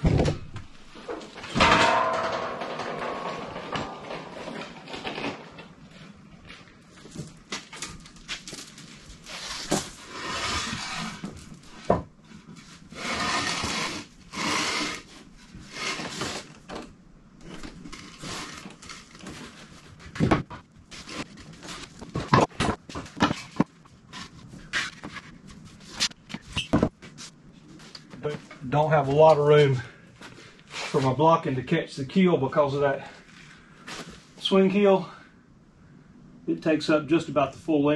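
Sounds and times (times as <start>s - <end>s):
wooden blocks scraping and rattling: 1.0s - 6.2s, 8.3s - 16.6s, 17.8s - 26.9s.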